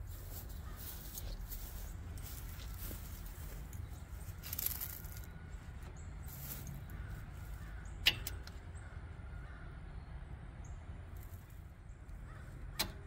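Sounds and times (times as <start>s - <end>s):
hands rustling hoses: 0.0s - 6.8s
sharp click: 12.8s - 13.0s.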